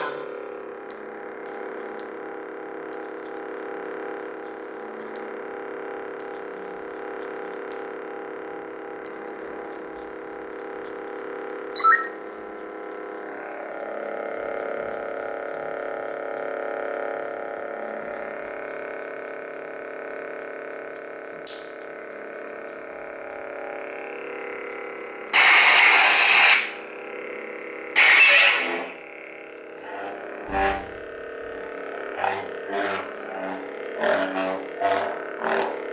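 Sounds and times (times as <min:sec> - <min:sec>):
electronic idle hum: 0:00.0 - 0:35.9
short electronic blip: 0:11.8 - 0:12.2.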